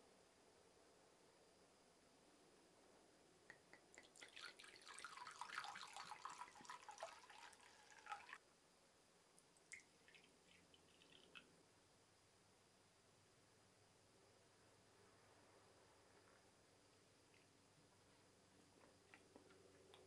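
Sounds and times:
liquid trickling and dripping: 3.5 - 8.4, 9.4 - 11.5
liquid pouring from glass bottle: 3.9 - 8.4.

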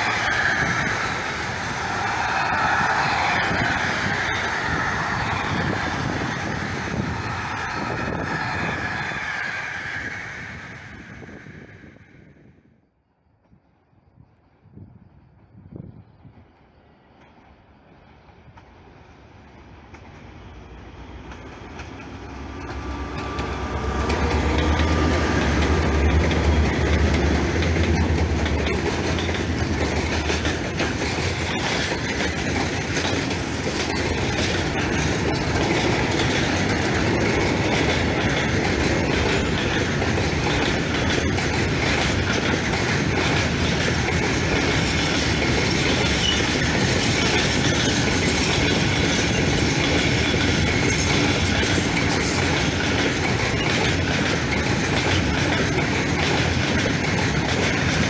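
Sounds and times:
train wheels rumbling on rails: 0.0 - 12.6, 13.4 - 58.0
diesel locomotive hum: 0.0 - 12.8, 14.2 - 58.0
wheels clacking over rail joints: 21.1 - 58.0.

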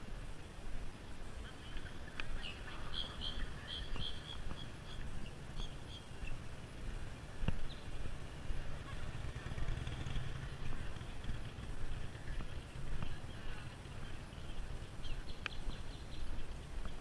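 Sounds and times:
bird chirping: 1.4 - 6.4, 7.6 - 8.0, 11.5 - 17.0.

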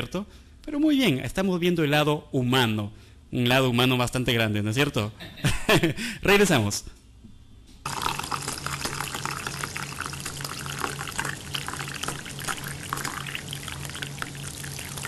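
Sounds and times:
coffee pouring into a mug: 7.9 - 15.0.

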